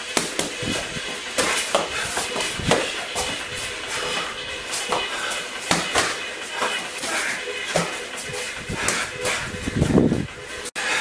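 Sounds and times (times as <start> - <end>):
gloved punches and kicks striking: 0.0 - 3.4, 4.8 - 8.0.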